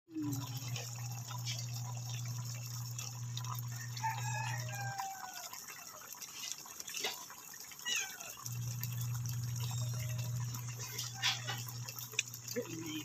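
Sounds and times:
coconut milk simmering in pan: 0.1 - 13.0
rooster crowing: 3.6 - 6.0, 10.7 - 11.7
steady low hum: 8.5 - 13.0.

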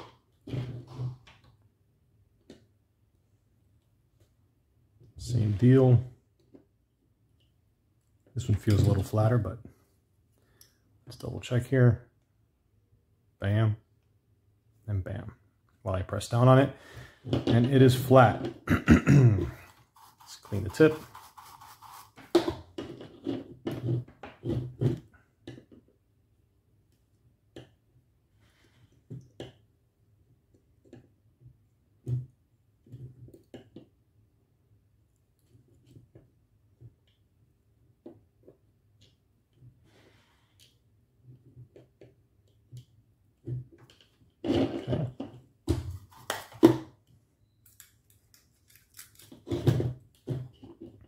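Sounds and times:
tools rustling and scraping: 19.5 - 25.1.

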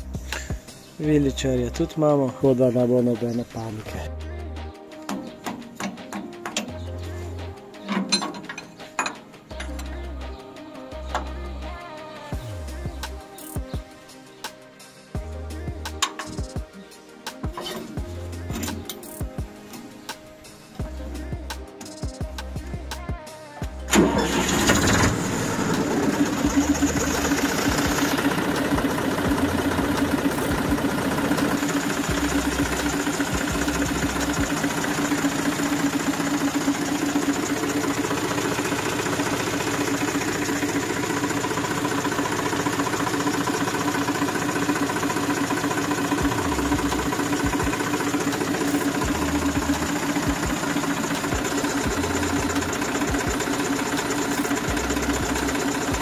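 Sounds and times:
tractor diesel engine idling: 23.9 - 56.0.

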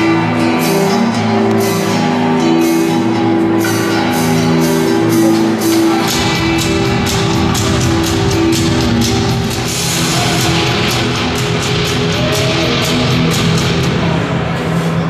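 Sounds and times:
loud rock music: 0.0 - 15.0
fast steady drum beat: 5.8 - 14.4.

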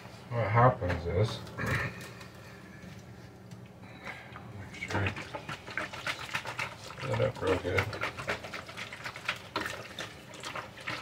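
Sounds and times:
juice sloshing in shaken jug: 4.7 - 11.0.

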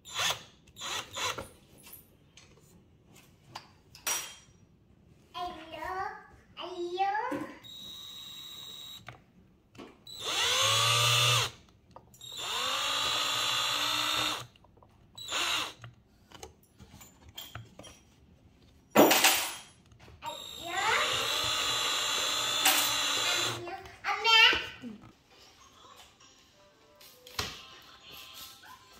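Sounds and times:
cordless drill whining: 0.0 - 1.5, 7.6 - 9.2, 10.1 - 11.6, 12.2 - 14.6, 15.2 - 16.0, 20.2 - 23.6.

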